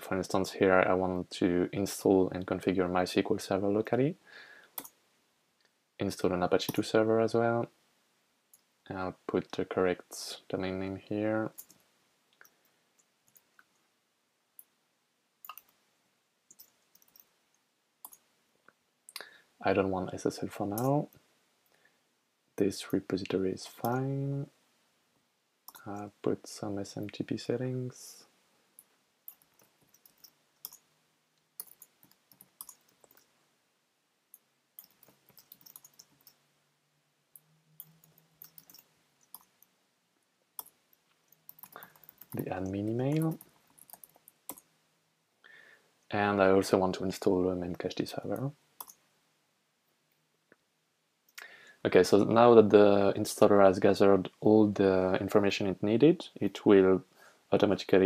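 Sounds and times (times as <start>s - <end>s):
computer mouse and keyboard clicks: 16.5s - 17.4s, 28.8s - 30.9s, 31.6s - 33.3s, 34.3s - 36.4s, 37.4s - 39.7s, 40.6s - 44.7s.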